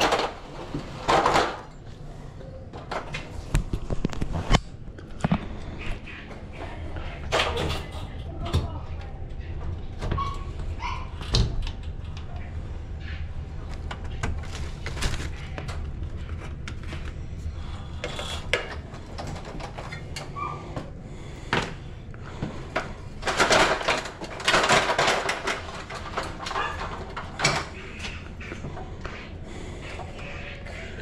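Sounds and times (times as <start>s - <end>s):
scraping and clatter: 22.3s - 31.0s.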